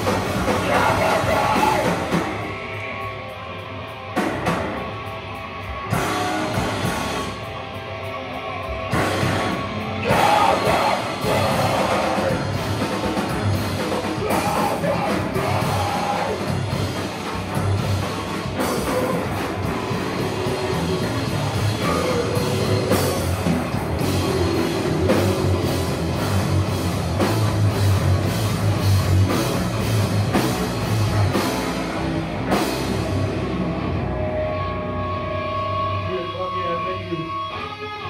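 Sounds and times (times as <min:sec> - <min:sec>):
heavy metal band playing: 0:00.0 - 0:38.0
person singing: 0:00.4 - 0:02.3, 0:10.0 - 0:12.6, 0:14.2 - 0:16.6, 0:18.6 - 0:23.3.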